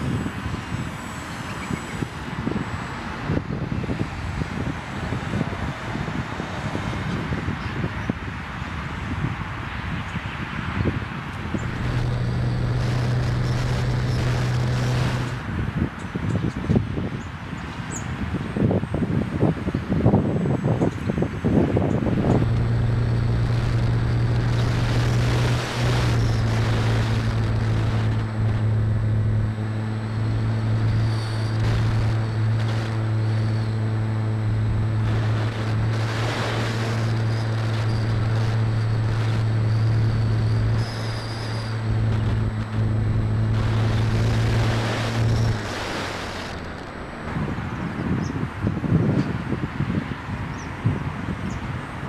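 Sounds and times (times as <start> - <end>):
rushing wind: 0.0 - 52.0
electric motor and propeller: 11.3 - 16.8, 19.4 - 49.6.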